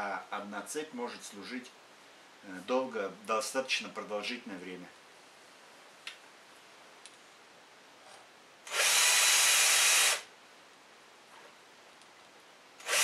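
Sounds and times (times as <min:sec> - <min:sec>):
drill whirring and grinding: 0:08.7 - 0:10.3, 0:12.8 - 0:13.0.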